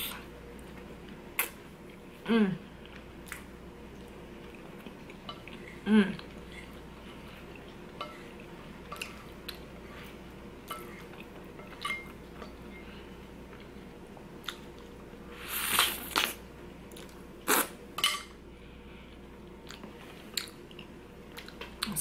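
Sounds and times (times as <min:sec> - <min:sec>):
person chewing: 0:02.8 - 0:12.0, 0:14.4 - 0:17.8, 0:19.1 - 0:21.9.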